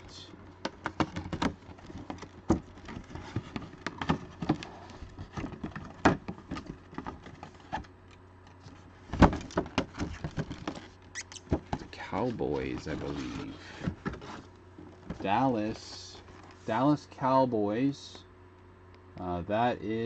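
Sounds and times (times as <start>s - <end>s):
cardboard packaging being opened: 0.4s - 7.9s.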